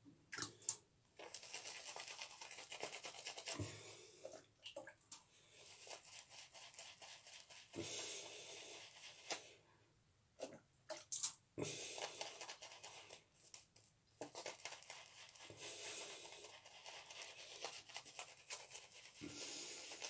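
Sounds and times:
shaving brush swirling lather: 1.2s - 3.8s, 5.5s - 9.6s, 11.6s - 20.0s.

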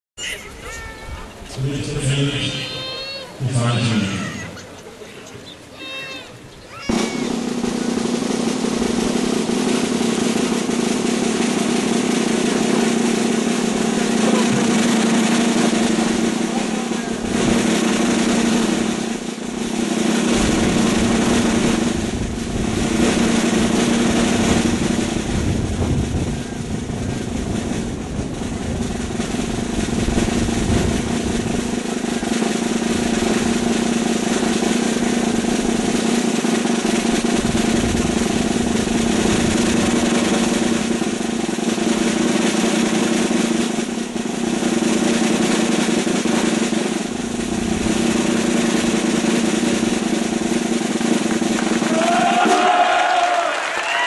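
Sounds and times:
drum roll: 0.5s - 54.0s.

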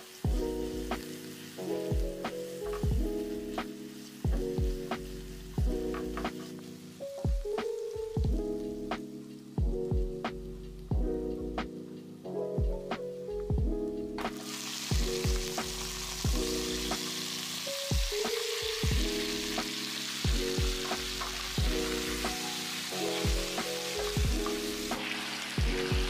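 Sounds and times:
meat sizzling in a frying pan: 0.0s - 6.7s, 14.4s - 26.0s
music with plucked beat: 0.2s - 17.2s, 17.9s - 26.0s.

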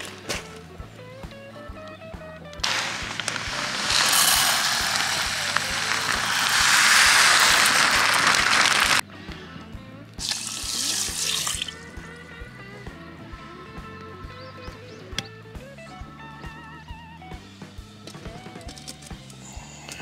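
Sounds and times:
rice grains pouring into a pot: 2.6s - 9.0s, 10.2s - 11.7s
water pouring onto rice: 2.6s - 9.0s, 10.2s - 11.7s.

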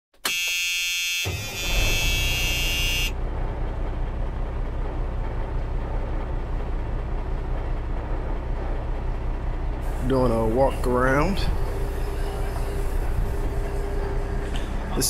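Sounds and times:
loud electronic tone: 0.2s - 3.2s
garbage truck engine rumbling: 1.3s - 15.0s.

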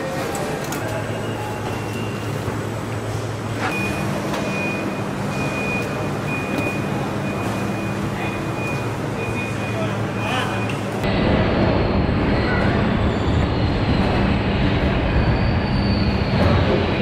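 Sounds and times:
machinery hum and hiss: 0.0s - 17.0s
low hum: 11.0s - 17.0s.

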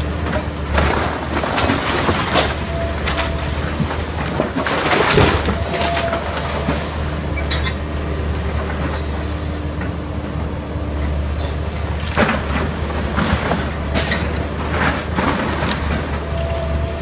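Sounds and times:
wood cracking and splintering: 0.0s - 7.1s, 12.0s - 17.0s
excavator diesel engine: 0.0s - 17.0s.

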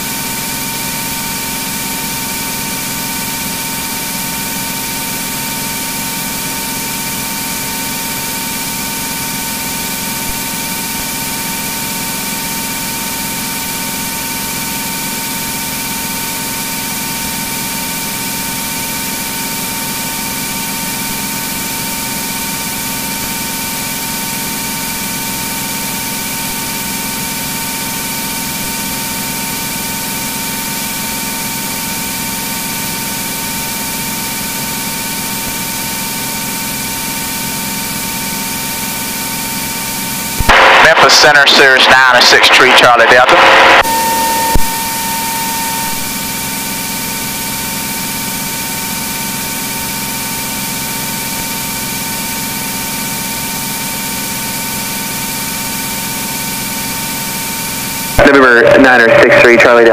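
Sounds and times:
aircraft engine and propeller droning: 43.3s - 46.5s.

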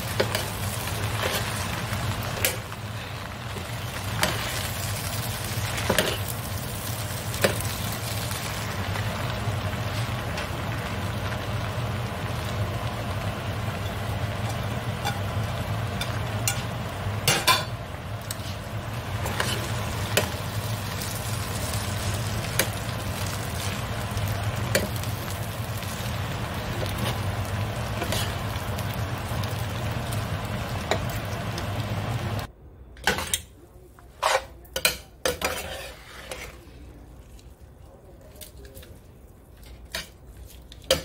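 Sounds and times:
noodles sizzling in a pan: 0.0s - 32.5s, 34.2s - 37.3s
metal utensil scraping a pan: 34.2s - 36.7s.

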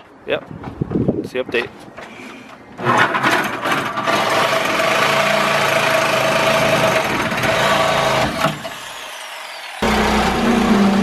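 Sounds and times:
reciprocating saw cutting steel: 2.8s - 11.0s.

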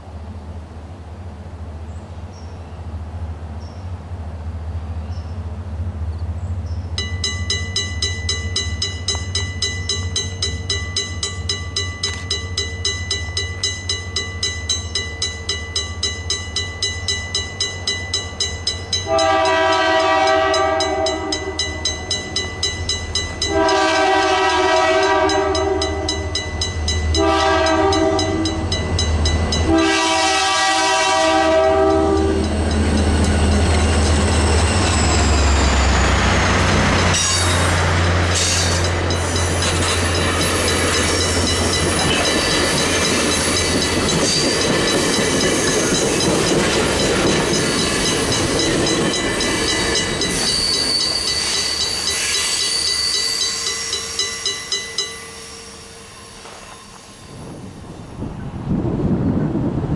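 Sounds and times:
diesel locomotives rumbling past: 0.0s - 59.9s
railroad crossing bell ringing: 6.9s - 58.1s
locomotive horn: 19.0s - 21.7s, 23.5s - 26.4s, 27.1s - 28.7s, 29.6s - 32.5s.

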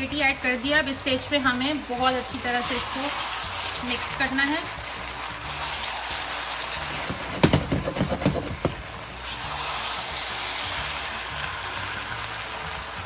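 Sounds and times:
food sizzling in a pan: 0.0s - 13.0s
spatula knocking and scraping pan: 7.0s - 8.8s.

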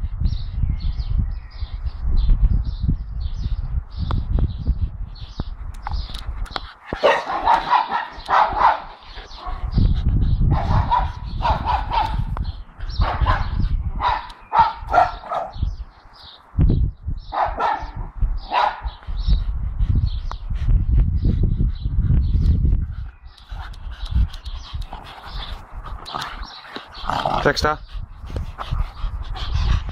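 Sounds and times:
dogs barking: 6.9s - 9.8s, 10.5s - 15.6s, 17.3s - 19.0s.

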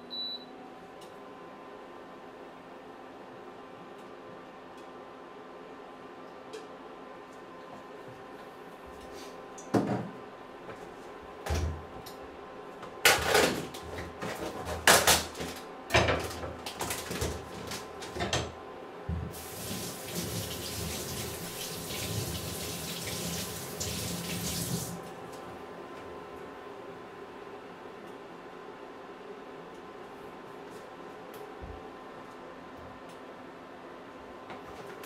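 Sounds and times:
kitchen knocks and clatters: 9.7s - 10.2s, 13.0s - 19.4s
water running: 19.3s - 25.2s.

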